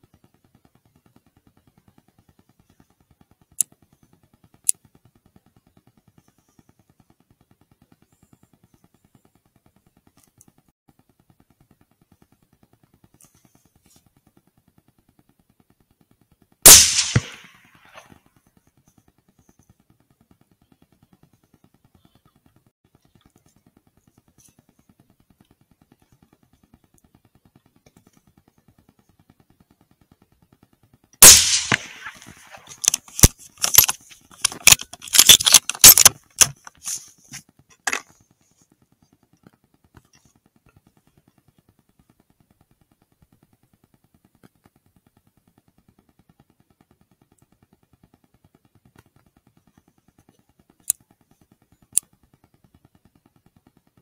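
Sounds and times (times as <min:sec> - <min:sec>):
sharp clicks and clatter: 0:00.0 - 0:54.0
loud rifle shot: 0:16.6 - 0:18.0, 0:31.2 - 0:33.3.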